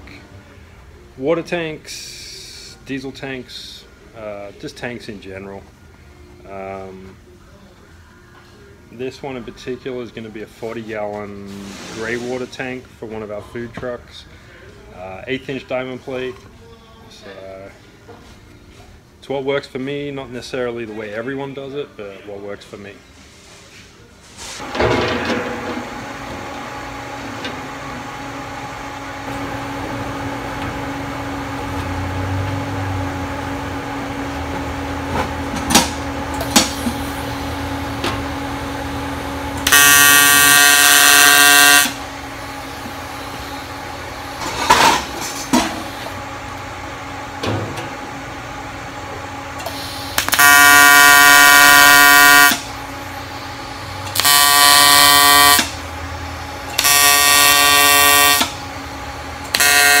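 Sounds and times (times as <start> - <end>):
steady hum: 24.0 - 60.0
welding arc buzzing: 25.7 - 47.3, 48.0 - 60.0.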